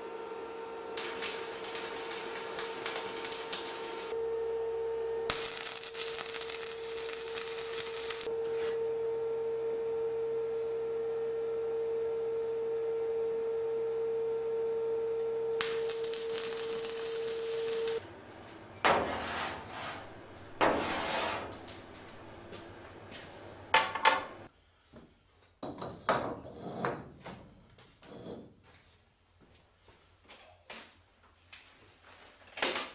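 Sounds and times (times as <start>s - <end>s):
steady hum: 0.4s - 24.5s
arc welding crackling: 1.0s - 4.2s, 5.3s - 8.3s, 15.6s - 18.1s, 19.5s - 20.7s, 21.3s - 24.5s.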